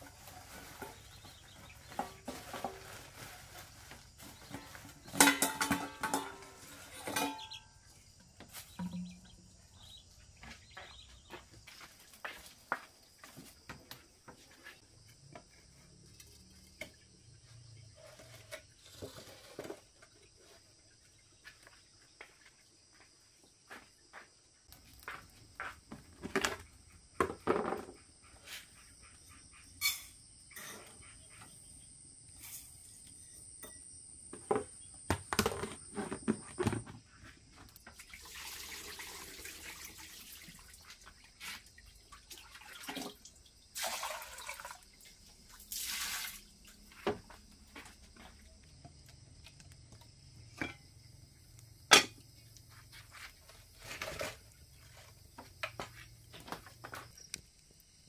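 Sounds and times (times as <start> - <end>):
water running: 37.9 - 47.0.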